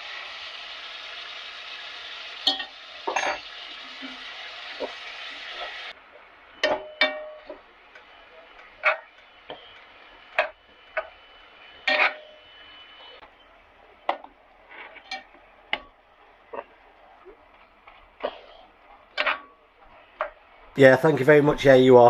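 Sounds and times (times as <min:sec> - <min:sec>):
meat and onions sizzling: 0:00.0 - 0:21.8
metal spoon clinking on pot: 0:02.4 - 0:03.5.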